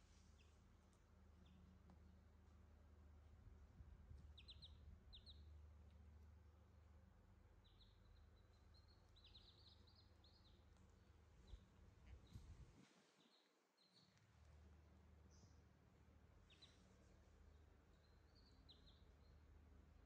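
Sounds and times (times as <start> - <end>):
chicks peeping: 4.1 - 5.6, 7.6 - 12.6, 16.4 - 16.9, 17.5 - 19.4.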